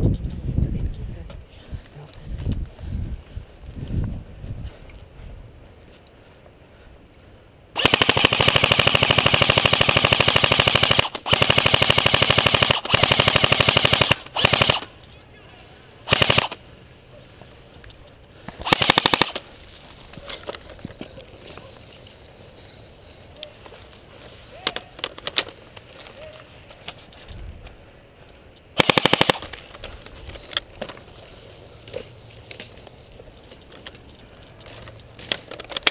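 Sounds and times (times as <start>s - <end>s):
airsoft rifle rattling bursts: 7.8s - 14.9s, 16.1s - 16.6s, 18.6s - 19.6s, 28.8s - 30.6s.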